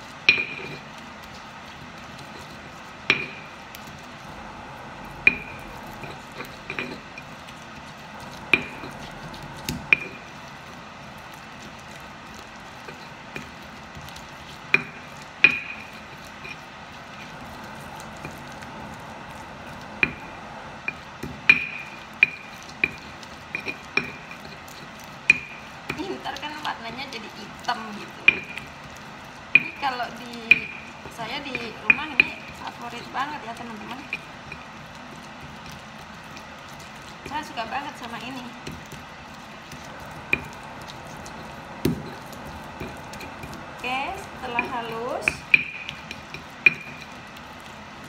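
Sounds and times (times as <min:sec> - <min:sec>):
pestle grinding in stone mortar: 0:00.0 - 0:48.0
pestle knocking on stone: 0:03.1 - 0:03.6, 0:08.2 - 0:10.3, 0:12.9 - 0:16.6, 0:20.0 - 0:26.2, 0:39.7 - 0:43.6, 0:44.2 - 0:47.2.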